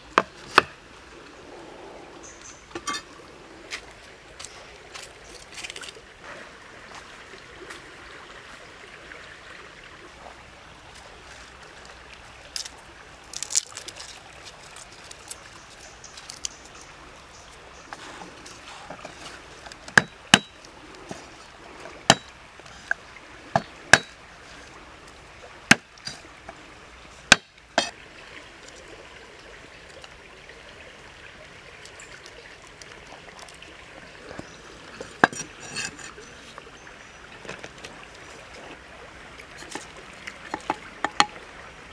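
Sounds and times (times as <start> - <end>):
stream trickling: 0.0 - 41.9
cleaver striking wooden block: 19.9 - 20.6, 22.1 - 22.3, 23.6 - 24.2, 25.7 - 25.9, 27.3 - 27.9, 40.5 - 41.4.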